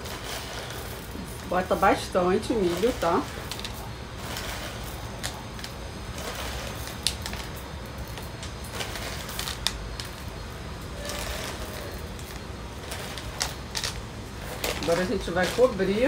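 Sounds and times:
popcorn kernels clattering: 0:00.0 - 0:16.0.

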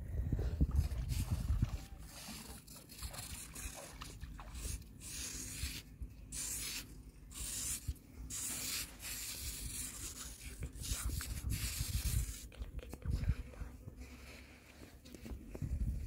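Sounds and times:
metal knife scraping sand: 0:04.6 - 0:12.6.

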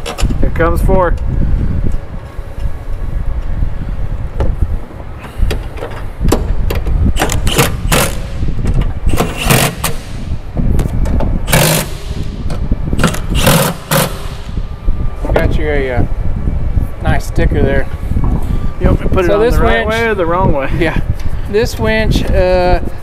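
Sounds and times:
steady low rumble: 0:00.0 - 0:23.0
impact wrench bursts: 0:07.2 - 0:08.4, 0:09.1 - 0:10.3, 0:11.5 - 0:12.4, 0:13.0 - 0:14.6.

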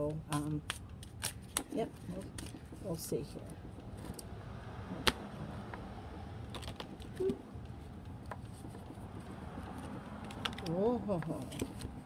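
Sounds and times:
cards being shuffled: 0:00.0 - 0:02.9, 0:06.5 - 0:12.0.

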